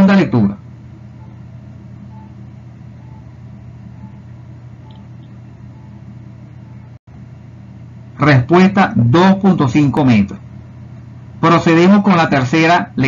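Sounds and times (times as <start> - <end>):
low electrical hum: 0.0 - 13.0
faint short tones: 3.0 - 7.0.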